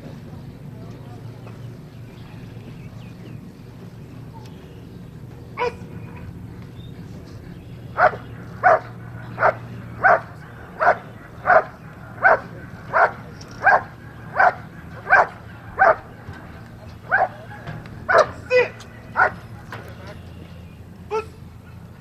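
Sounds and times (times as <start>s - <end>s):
dog barking: 5.6s - 6.3s, 7.9s - 16.2s, 17.0s - 19.7s.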